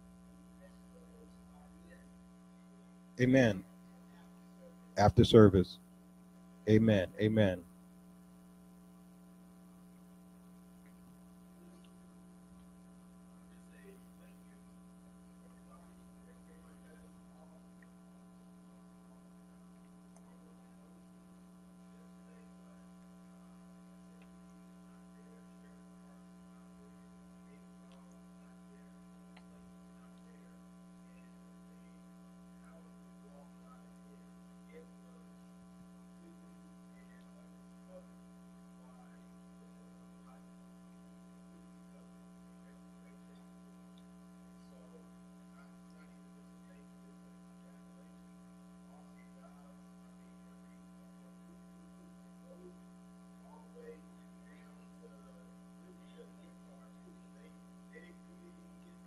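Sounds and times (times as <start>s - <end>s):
low electrical hum: 0.0s - 59.0s
faint ticks: 43.8s - 44.2s.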